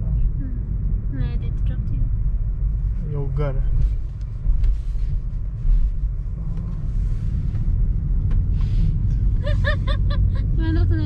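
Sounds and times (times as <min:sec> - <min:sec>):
car interior road rumble: 0:00.0 - 0:11.0.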